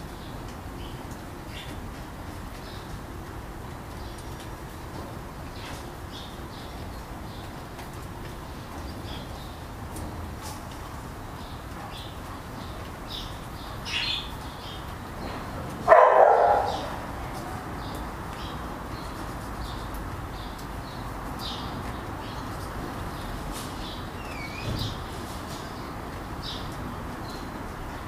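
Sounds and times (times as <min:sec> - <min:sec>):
dog barking loudly: 0:15.8 - 0:17.0.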